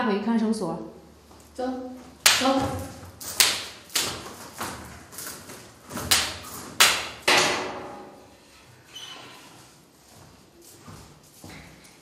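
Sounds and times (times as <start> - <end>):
hard-soled footsteps echoing: 1.2 - 8.2, 9.5 - 12.0.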